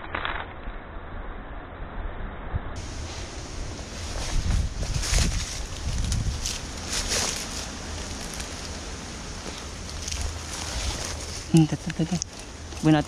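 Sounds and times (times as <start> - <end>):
wind buffeting microphone: 2.8 - 11.6
crunching rustles in dry leaves: 2.8 - 13.0.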